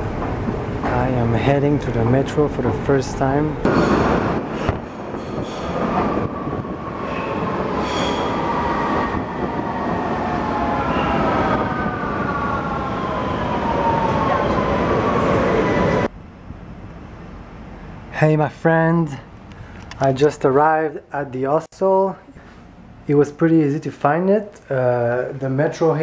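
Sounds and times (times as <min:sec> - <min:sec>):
metro train wheel noise: 0:00.0 - 0:20.5.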